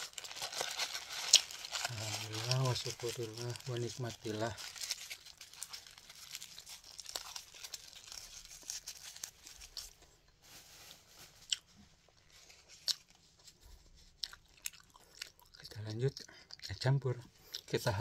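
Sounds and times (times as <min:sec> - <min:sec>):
food tearing and crackling: 0:00.0 - 0:10.0
person chewing food: 0:12.7 - 0:13.1, 0:14.1 - 0:15.6.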